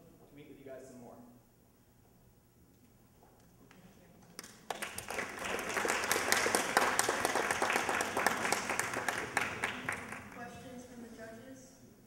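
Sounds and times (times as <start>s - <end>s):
audience applauding: 4.4s - 10.4s.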